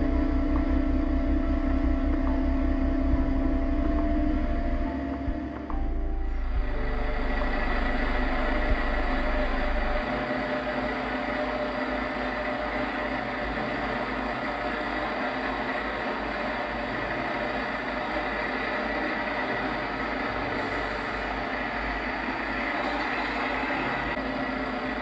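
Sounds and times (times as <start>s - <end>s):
diesel engine idling: 0.0s - 10.2s.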